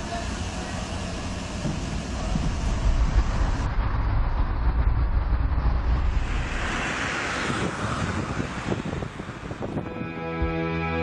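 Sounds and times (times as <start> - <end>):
engine and road rumble: 0.0 - 10.6
rushing hiss: 6.0 - 9.7.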